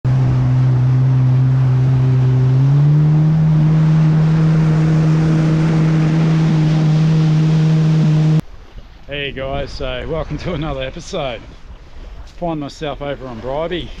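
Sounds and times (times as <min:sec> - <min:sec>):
jet ski engine running: 0:00.0 - 0:08.4.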